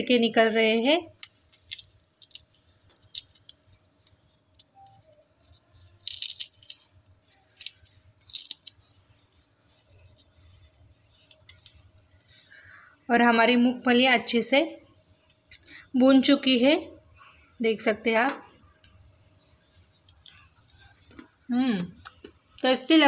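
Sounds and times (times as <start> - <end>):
peanut shells cracking: 0.6 - 12.5.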